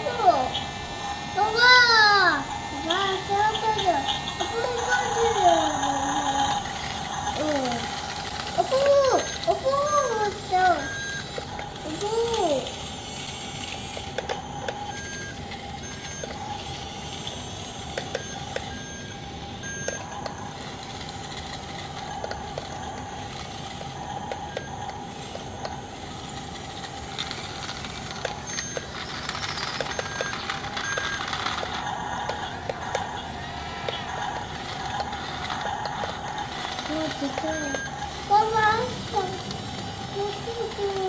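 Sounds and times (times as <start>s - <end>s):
electric drive whine: 0.0s - 41.0s
short electronic beeps: 8.6s - 11.6s, 14.0s - 17.0s, 18.0s - 20.6s, 27.2s - 34.3s, 36.8s - 39.2s.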